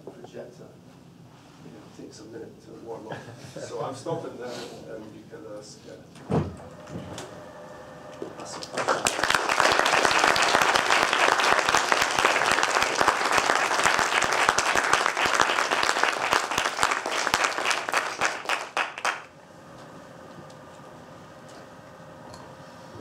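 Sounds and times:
audience applauding: 8.2s - 19.3s.

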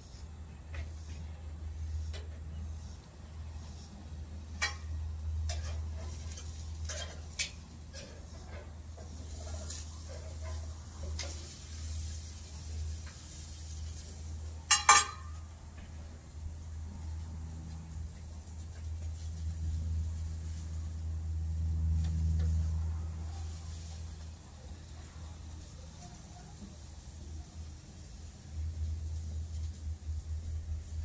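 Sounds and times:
tongs knocking on metal grill: 14.6s - 15.4s
loud metal clack: 14.7s - 15.4s
steady low rumble: 15.4s - 31.0s.

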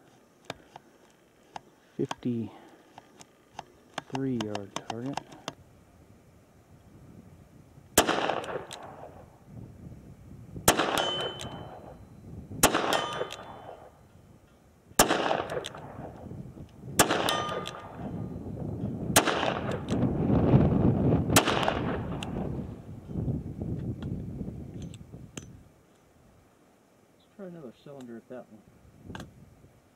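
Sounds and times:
bullets ringing on steel target: 10.7s - 12.0s, 12.6s - 13.9s, 17.0s - 18.4s.

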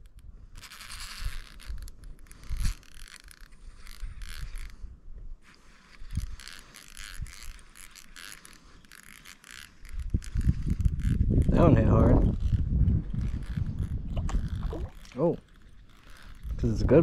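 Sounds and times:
fishing reel clicking: 0.0s - 17.0s
low thumps: 13.7s - 15.2s.

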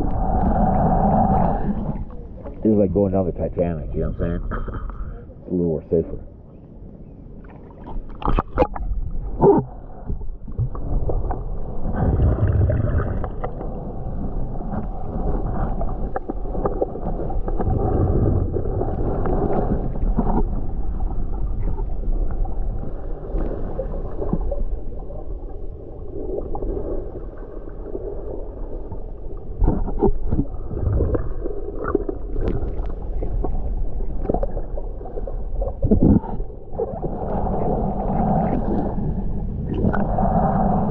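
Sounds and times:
muffled underwater gurgling: 8.2s - 40.9s.

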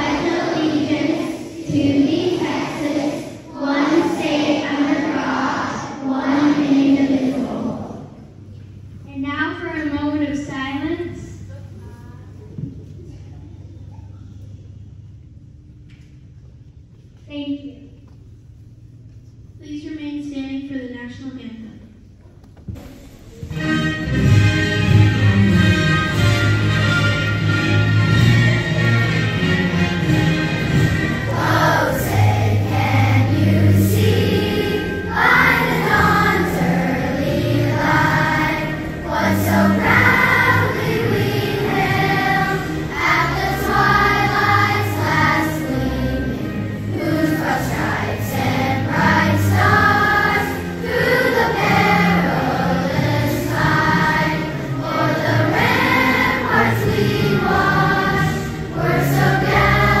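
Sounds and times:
children's choir singing: 0.0s - 8.4s, 26.2s - 60.0s.

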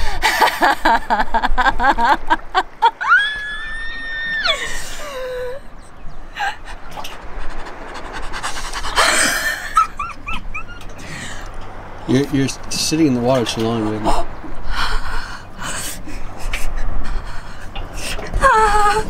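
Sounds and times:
woman laughing: 0.0s - 5.7s, 6.3s - 6.9s, 8.7s - 11.5s, 18.3s - 19.0s
woman squealing and whimpering: 2.9s - 5.7s, 18.4s - 19.0s
woman breathing heavily: 4.5s - 6.9s, 11.0s - 11.6s, 14.2s - 19.0s.

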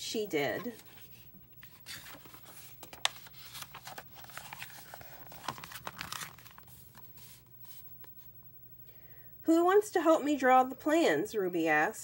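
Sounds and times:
paper rustling and crinkling: 0.5s - 8.2s.

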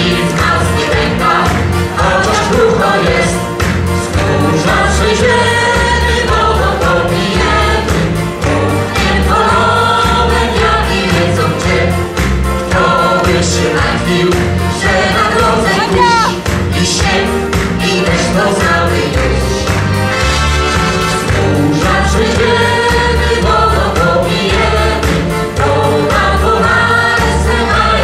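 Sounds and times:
accordion: 0.0s - 28.0s
choir singing: 0.0s - 28.0s.

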